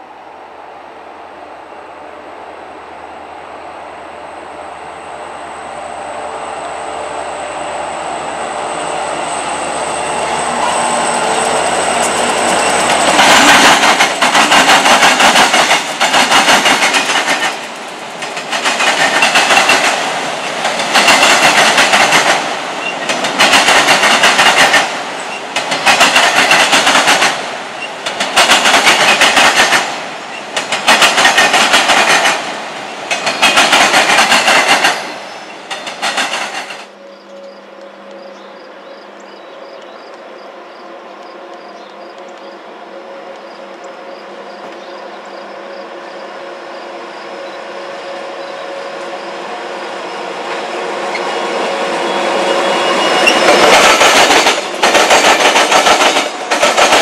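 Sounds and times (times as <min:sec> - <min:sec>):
train wheels clattering over crossing: 0:10.0 - 0:36.9, 0:52.6 - 0:57.0.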